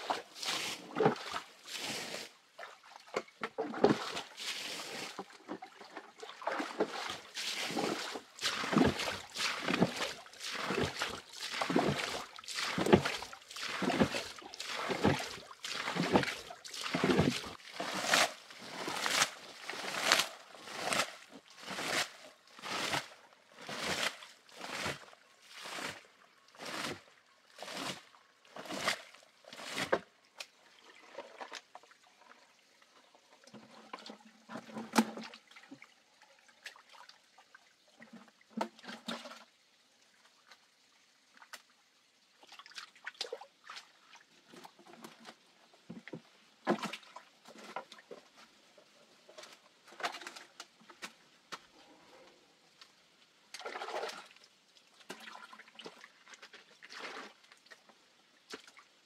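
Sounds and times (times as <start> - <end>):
hands sloshing in shallow water: 0.0 - 32.0
water splashing as it is bailed: 0.0 - 32.3, 33.4 - 35.9, 38.0 - 39.5, 42.4 - 48.2, 53.5 - 57.9.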